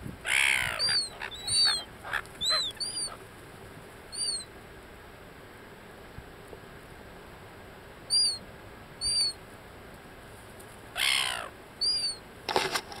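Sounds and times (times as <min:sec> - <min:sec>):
gulls calling: 0:00.2 - 0:03.3, 0:04.1 - 0:04.5, 0:08.1 - 0:08.4, 0:09.0 - 0:09.4, 0:11.0 - 0:12.2.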